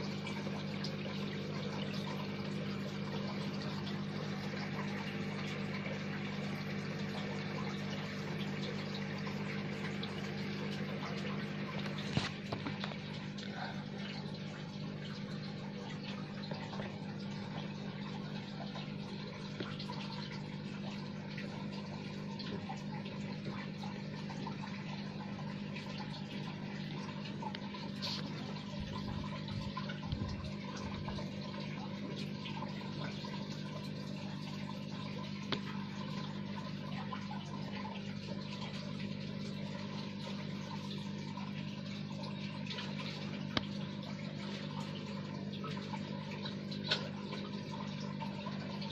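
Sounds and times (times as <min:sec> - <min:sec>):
running water hiss: 0:27.8 - 0:28.8.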